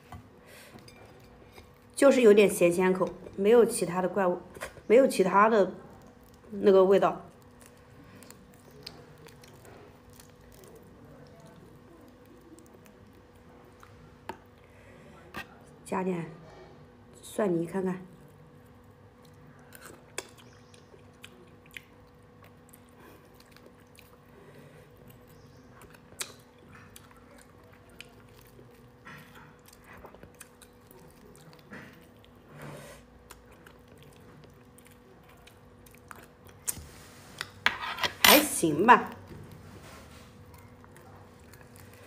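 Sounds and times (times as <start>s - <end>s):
faint steady hum: 0.0s - 42.0s
close chewing: 5.6s - 14.7s, 18.1s - 37.6s, 39.1s - 42.0s.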